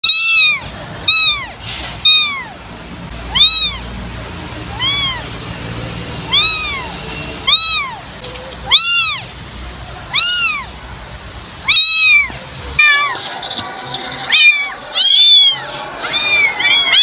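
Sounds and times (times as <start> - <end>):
kitten meowing: 0.0 - 2.6, 3.3 - 3.9, 4.5 - 5.4, 6.2 - 9.3, 10.0 - 10.8, 11.6 - 13.2, 14.3 - 17.0.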